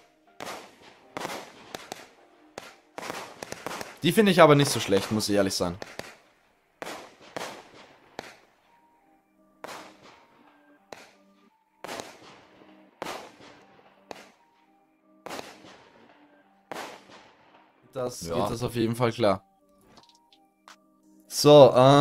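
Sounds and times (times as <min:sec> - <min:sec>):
fireworks bangs: 0:00.0 - 0:08.5, 0:09.6 - 0:11.2, 0:11.8 - 0:14.4, 0:15.2 - 0:17.4.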